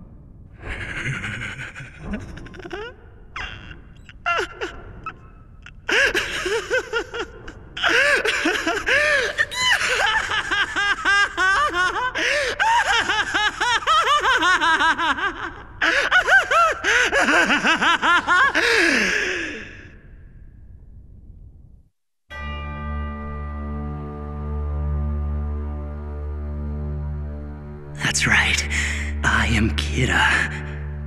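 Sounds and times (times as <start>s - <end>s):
man laughing maniacally: 0.6s - 19.8s.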